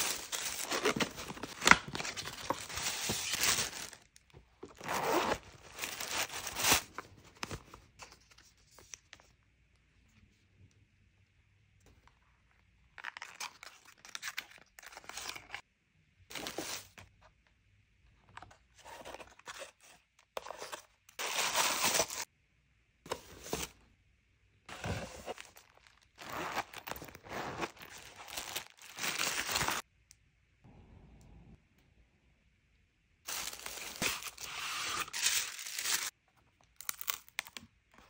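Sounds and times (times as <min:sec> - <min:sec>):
paper rustling and crinkling: 0:00.0 - 0:04.1, 0:04.7 - 0:09.2, 0:24.7 - 0:29.8, 0:33.3 - 0:36.1.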